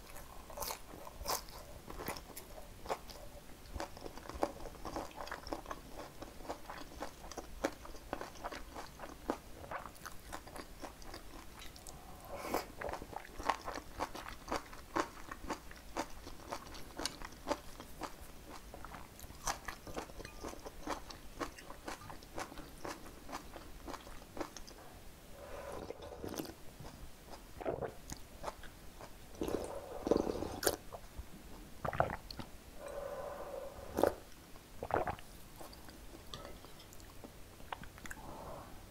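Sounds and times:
crunchy chewing: 0.0 - 24.8
sipping and swallowing: 31.8 - 32.5, 34.8 - 35.2.

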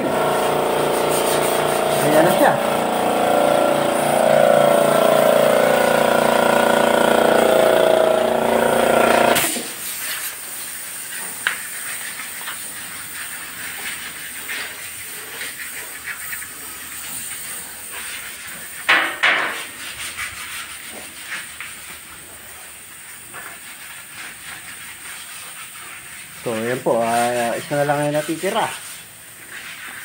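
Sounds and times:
spray gun hissing: 0.0 - 20.8.

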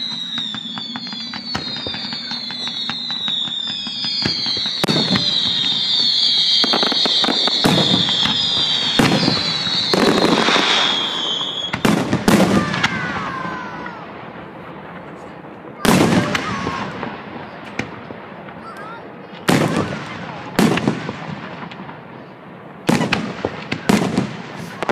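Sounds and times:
fireworks bursting: 0.0 - 24.9
fireworks crackling: 0.0 - 24.9
fireworks whistling: 0.0 - 24.9.

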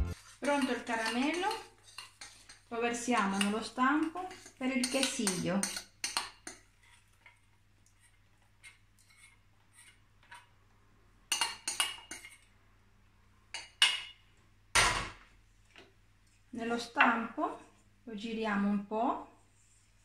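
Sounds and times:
metal spoon scraping saucepan: 0.0 - 7.1.

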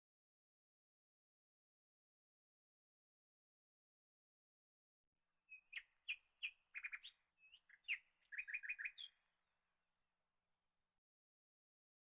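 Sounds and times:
small bird chirping: 5.5 - 9.2.

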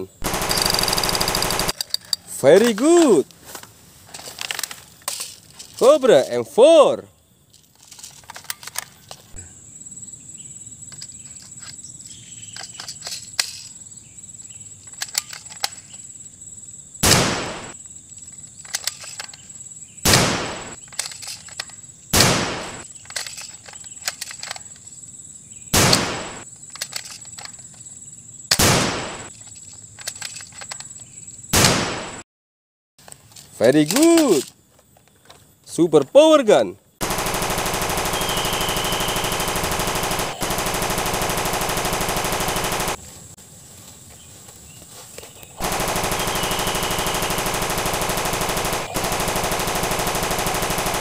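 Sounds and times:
toy rifle shots: 0.0 - 1.8, 17.0 - 17.8, 20.1 - 20.8, 25.8 - 27.0, 28.5 - 29.3, 37.0 - 43.0, 45.6 - 51.0
insects trilling: 0.0 - 31.7, 33.0 - 51.0
light handling clicks: 26.7 - 27.8.

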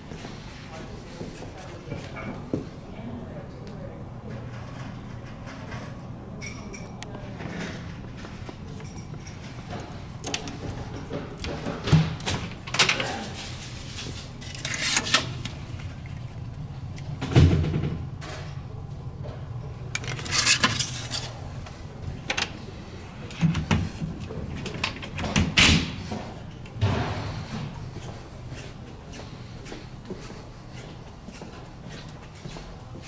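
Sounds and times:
paper tag flipping: 20.0 - 21.4.

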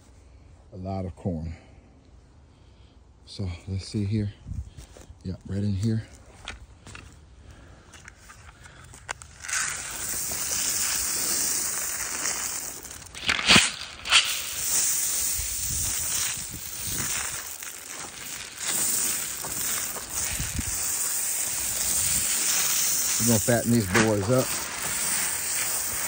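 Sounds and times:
footsteps crunching dry leaves: 8.2 - 26.0
sharp cracks: 8.5 - 26.0
corn pouring onto dry leaves: 9.1 - 26.0.

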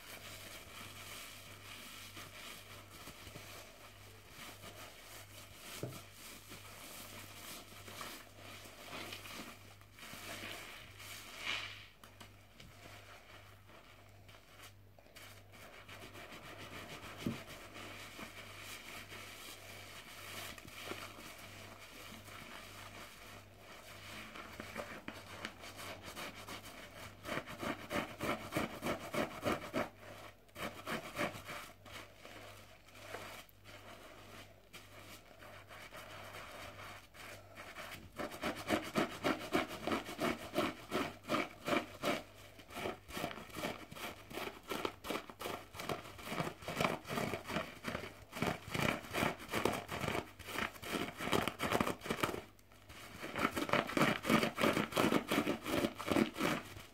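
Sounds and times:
soapy sponge squelching: 0.0 - 56.9.

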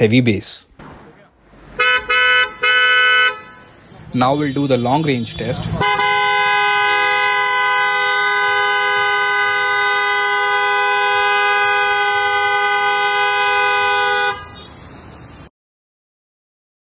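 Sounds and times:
car horn long two-note blast: 1.8 - 3.7, 4.4 - 14.6.

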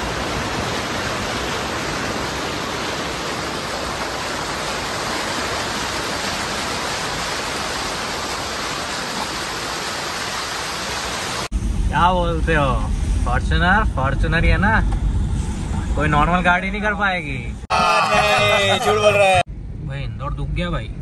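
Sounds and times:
tyre splashing through floodwater: 0.0 - 11.5.

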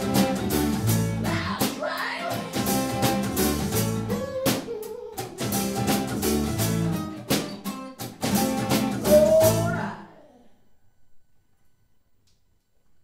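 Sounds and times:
acoustic guitars strumming chords: 0.0 - 10.0.

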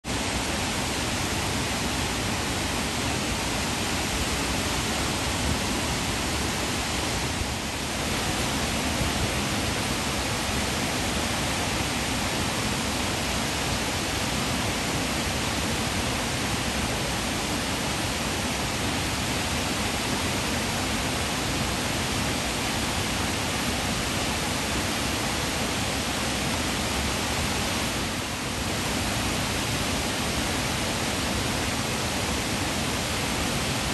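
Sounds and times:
water rushing over dam spillway: 0.0 - 33.9.

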